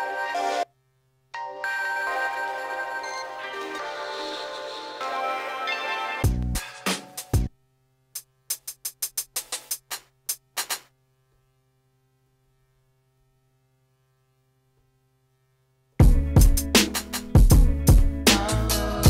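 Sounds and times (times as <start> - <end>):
faint electrical hum: 0.0 - 16.0
drum and percussion samples: 6.2 - 7.5, 8.2 - 11.0, 16.0 - 19.0.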